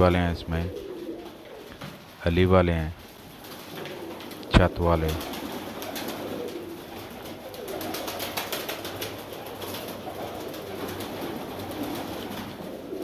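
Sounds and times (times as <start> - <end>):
pigeons cooing: 0.0 - 13.0
beaks pecking grain: 2.8 - 13.0.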